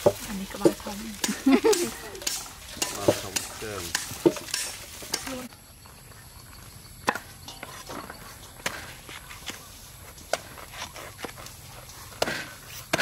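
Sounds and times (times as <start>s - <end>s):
clinks against metal bowl: 0.0s - 5.5s, 7.1s - 8.2s.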